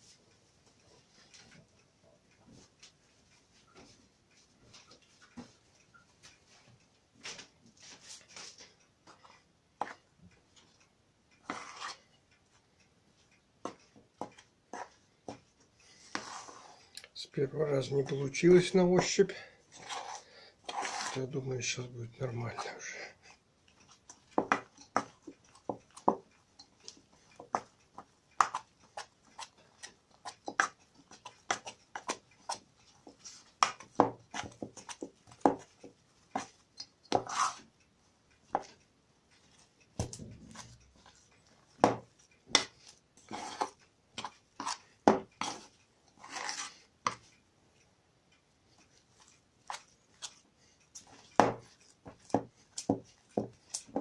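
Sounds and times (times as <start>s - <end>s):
utensil stirring dough in bowl: 0.0s - 47.8s, 48.4s - 54.0s.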